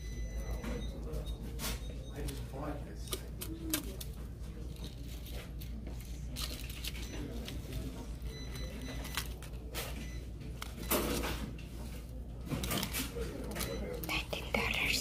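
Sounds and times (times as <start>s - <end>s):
clicks and rustles of card: 3.1s - 7.9s.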